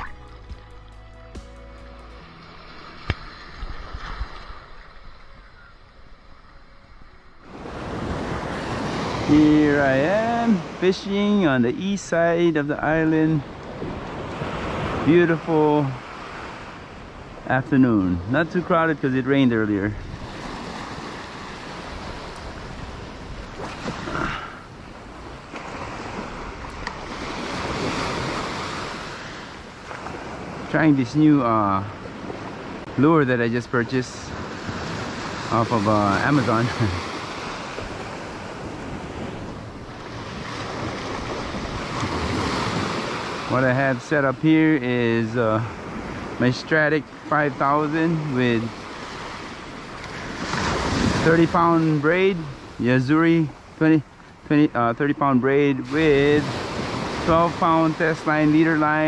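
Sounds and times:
ocean surf: 0.0 - 59.0
breaking waves: 2.2 - 59.0.

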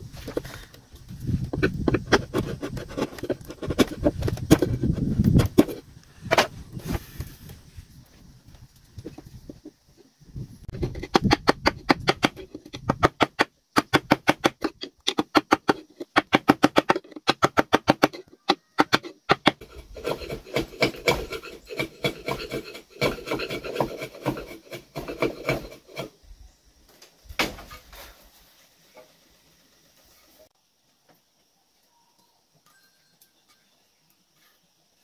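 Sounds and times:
saw cutting wood: 18.8 - 26.1.

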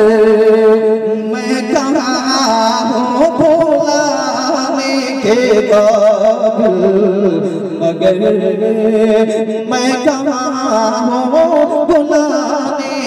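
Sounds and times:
man singing into a microphone: 0.0 - 13.0.

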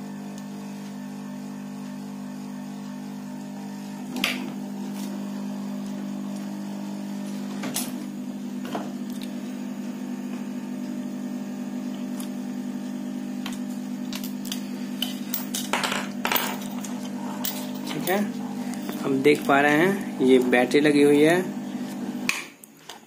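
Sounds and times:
steady low hum: 11.8 - 22.3.

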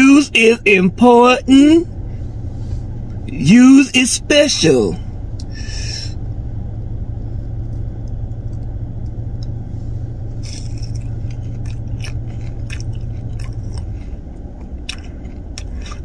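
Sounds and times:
car engine idling: 0.0 - 16.0
biting into fried bread: 10.4 - 16.0
chewing with clicks: 10.4 - 16.0.

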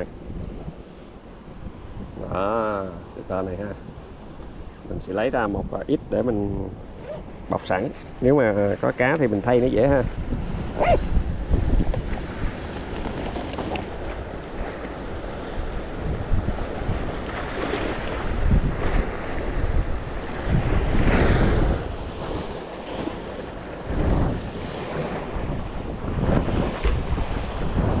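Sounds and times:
strong wind buffeting microphone: 0.0 - 28.0
sea waves rushing: 6.7 - 28.0.

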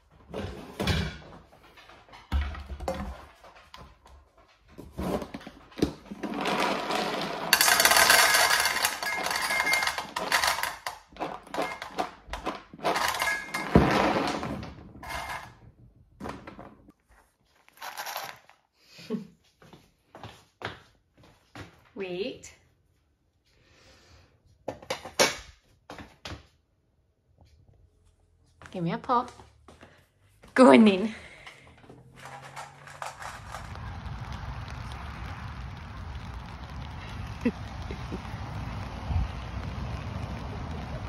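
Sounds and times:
kibble rattling into metal bowl: 6.2 - 14.4, 15.0 - 15.5, 32.2 - 33.7
bowl and container clinking: 7.5 - 14.0.

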